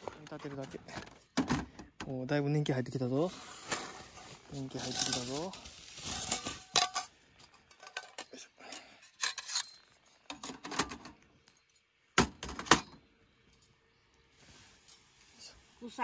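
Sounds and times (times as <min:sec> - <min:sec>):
metal clinking and clattering: 0:04.7 - 0:08.4.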